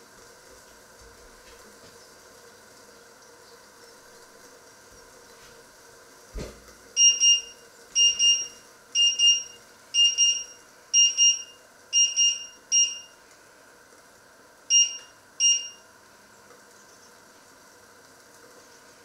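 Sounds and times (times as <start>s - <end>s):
thump: 6.4s - 6.6s
hob control panel double beeps: 7.0s - 13.2s, 14.7s - 15.8s.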